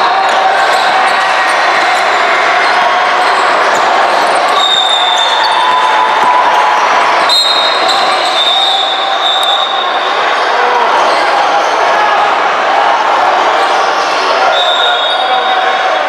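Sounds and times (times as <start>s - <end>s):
crowd noise: 0.0s - 16.0s
high shoe squeaks: 7.3s - 10.0s.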